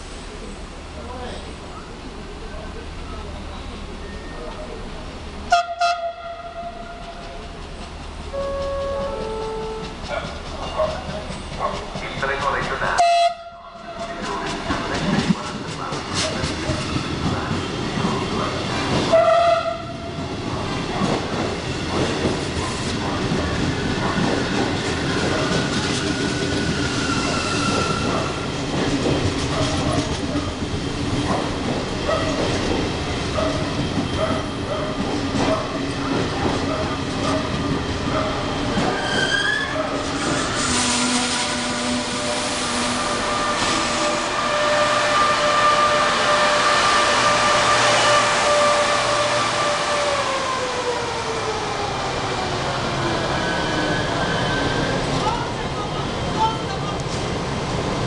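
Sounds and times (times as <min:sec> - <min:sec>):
train wheels clattering on rails: 0:06.8 - 0:13.0, 0:14.0 - 0:41.4.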